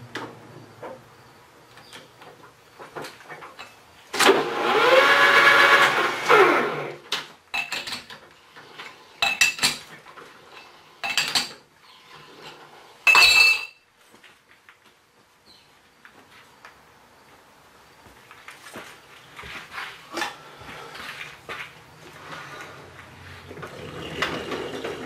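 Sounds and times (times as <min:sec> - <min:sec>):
lathe motor spinning up: 0:04.2 - 0:07.0.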